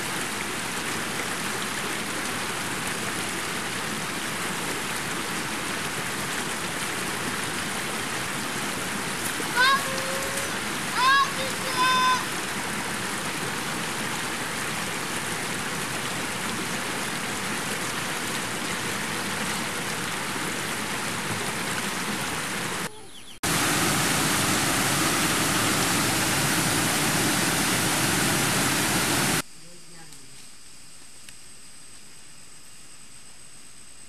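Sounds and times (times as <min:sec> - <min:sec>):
river rushing over boulders: 0:00.0 - 0:29.4
even rushing noise: 0:23.4 - 0:29.4.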